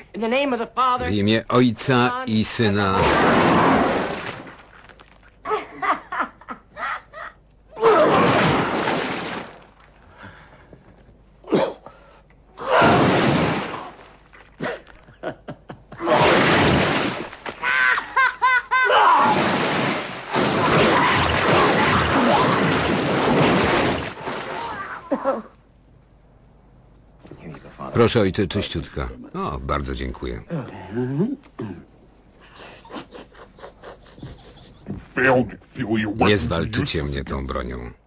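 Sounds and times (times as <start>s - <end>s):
wet vomiting splatters: 3.0s - 5.4s.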